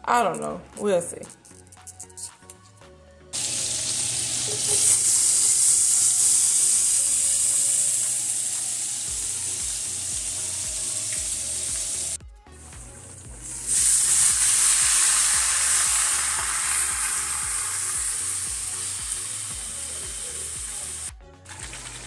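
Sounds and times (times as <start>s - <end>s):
vegetables sizzling in a frying pan: 3.4s - 12.2s, 13.5s - 22.0s.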